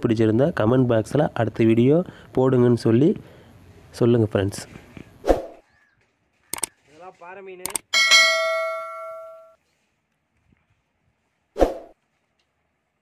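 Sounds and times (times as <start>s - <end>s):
mouse clicks: 6.5s - 6.7s
bell ding: 7.9s - 9.6s.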